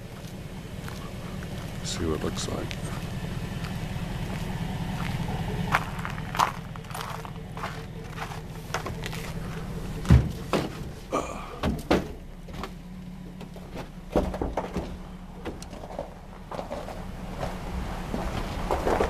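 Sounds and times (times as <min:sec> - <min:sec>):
footsteps on frozen ground: 0:00.0 - 0:10.8
steady low rumble: 0:00.0 - 0:19.0.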